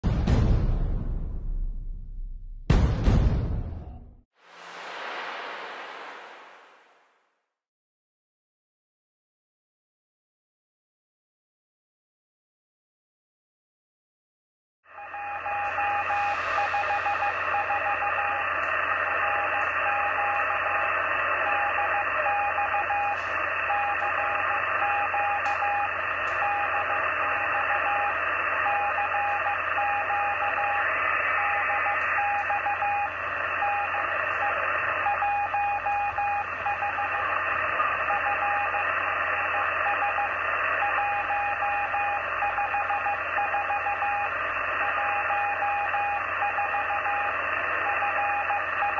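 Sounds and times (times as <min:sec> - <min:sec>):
morse code beeps: 0:15.0 - 0:48.9
radio band hiss: 0:15.1 - 0:48.9.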